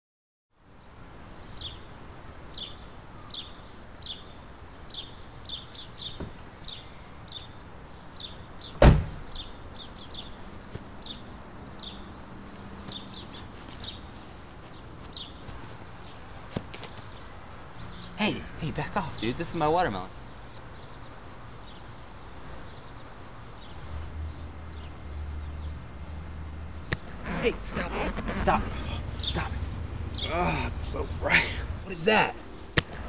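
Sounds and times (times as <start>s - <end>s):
heavy thump: 8.8s - 9.2s
footsteps in dry grass: 10.0s - 11.1s, 12.3s - 17.6s
small bird chirping: 22.7s - 32.8s.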